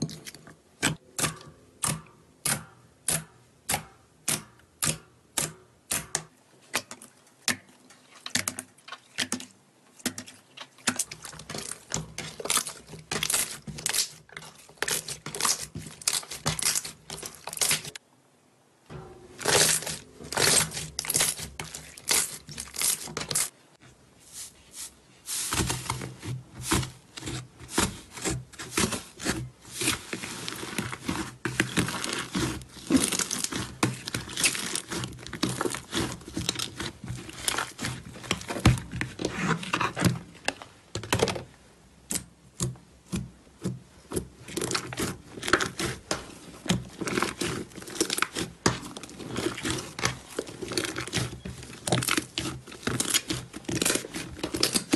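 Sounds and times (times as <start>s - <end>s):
hands squishing slime: 25.3s - 40.0s, 44.1s - 54.9s.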